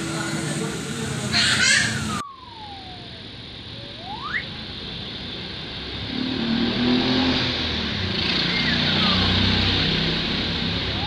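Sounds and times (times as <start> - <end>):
street traffic: 0.0 - 11.0
motorcycle engine approaching: 5.9 - 11.0.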